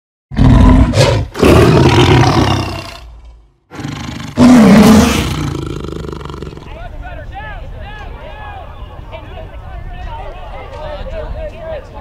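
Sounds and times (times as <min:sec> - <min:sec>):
tiger roaring: 0:00.3 - 0:03.1, 0:03.7 - 0:06.7.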